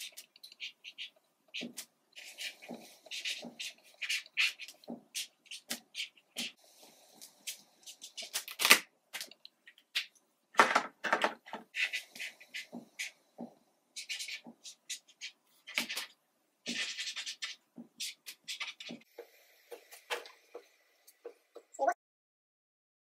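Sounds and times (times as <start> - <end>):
marker pens scratching paper: 0.0 - 6.6, 7.2 - 10.1, 11.1 - 19.1.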